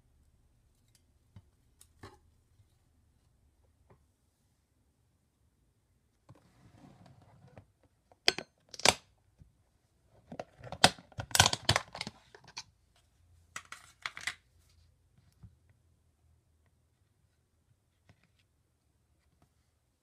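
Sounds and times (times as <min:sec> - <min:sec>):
plastic lid clicks and crinkles: 0:10.3 - 0:12.7.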